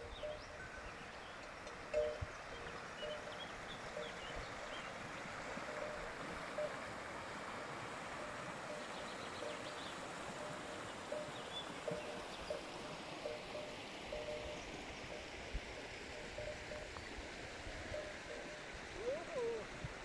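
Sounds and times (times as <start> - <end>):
birds chirping: 0.0 - 5.0, 8.7 - 14.6
stream rushing over rocks: 0.0 - 20.0.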